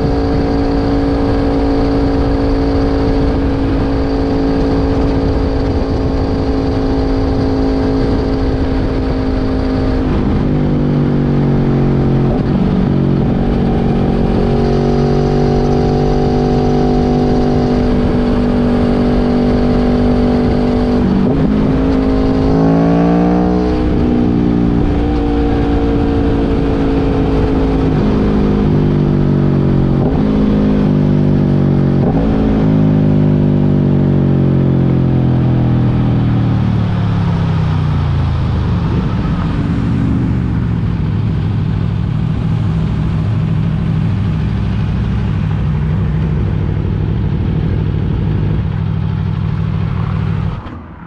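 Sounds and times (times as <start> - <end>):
motorcycle engine under way: 0.0 - 51.0
wind noise: 0.0 - 51.0.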